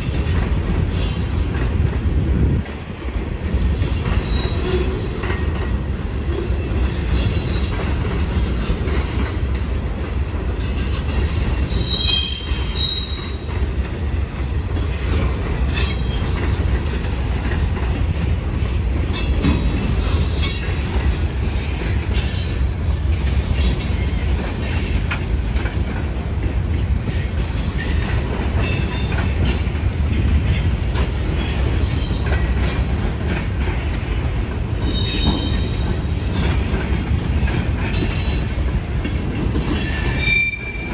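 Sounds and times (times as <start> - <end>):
steel wheels rumbling on rail: 0.0 - 40.9
high-pitched wheel squeals: 4.2 - 5.0, 10.2 - 14.4, 39.8 - 40.9.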